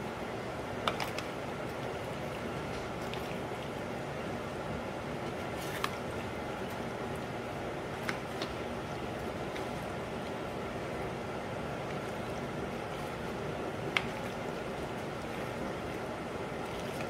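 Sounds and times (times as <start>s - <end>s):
steady background noise: 0.0s - 17.0s
wet squishing of pasta: 0.8s - 3.9s, 5.2s - 17.0s.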